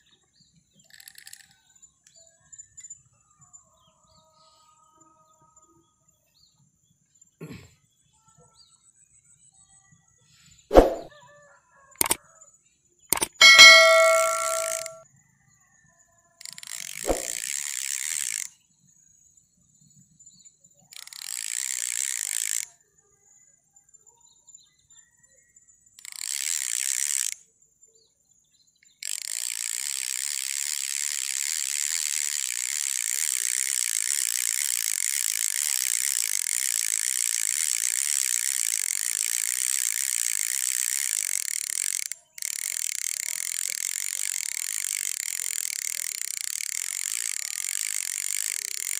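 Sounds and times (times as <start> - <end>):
cicadas buzzing: 29.0 - 48.9.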